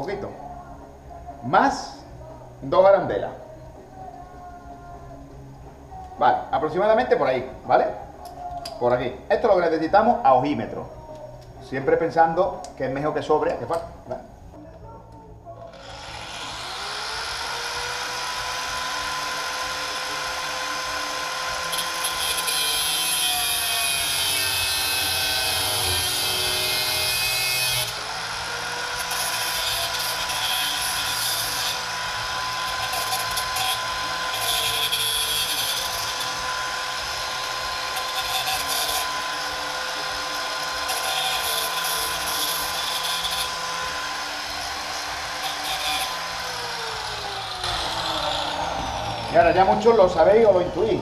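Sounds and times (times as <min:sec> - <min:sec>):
angle grinder cutting steel rod: 0:15.7 - 0:51.0.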